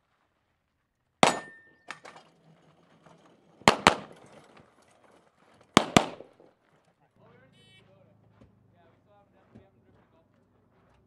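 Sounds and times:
pistol shots: 1.2 - 2.1, 3.6 - 4.3, 5.8 - 6.4
metallic ring: 1.2 - 5.0.

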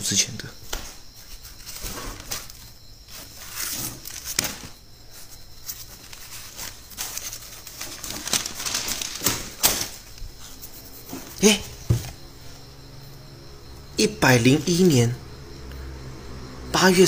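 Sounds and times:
newspaper rustling: 1.2 - 12.2.

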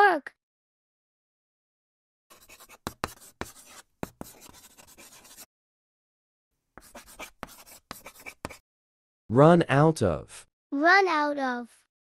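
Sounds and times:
marker scratching strokes: 2.3 - 5.5, 6.8 - 8.6.

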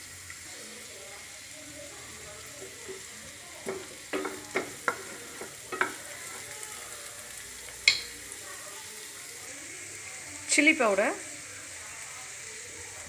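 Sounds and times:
vegetables sizzling in a frying pan: 0.0 - 13.0
wooden spatula scraping a pan: 2.6 - 6.8.

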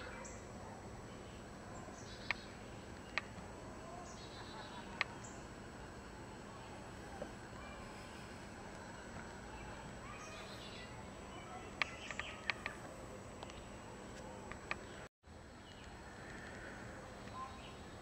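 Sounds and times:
distant bird calls: 0.0 - 18.0
sharp clicks: 11.8 - 13.6.

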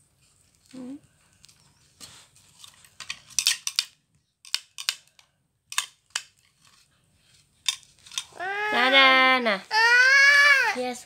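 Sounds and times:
plastic toy pieces clacking: 3.0 - 6.4.

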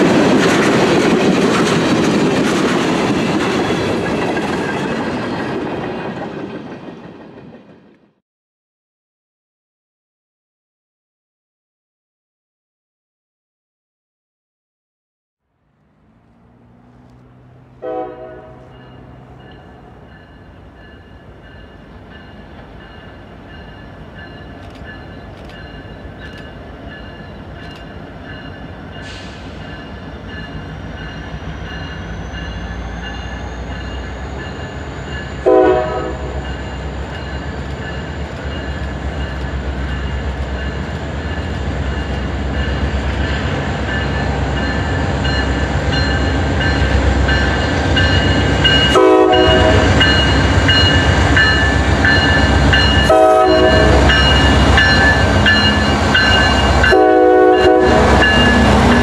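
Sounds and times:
diesel train rumbling: 0.0 - 8.2, 15.6 - 59.0
train air horn blasts: 17.8 - 19.5, 35.4 - 36.5, 48.9 - 50.0, 53.0 - 54.3, 56.7 - 59.0.

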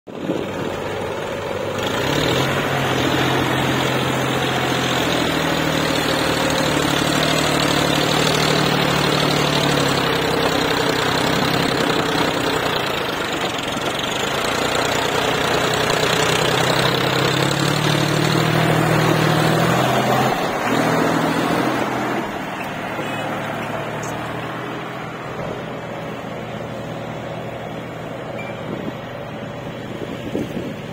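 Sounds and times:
tractor diesel engine: 0.1 - 30.9.

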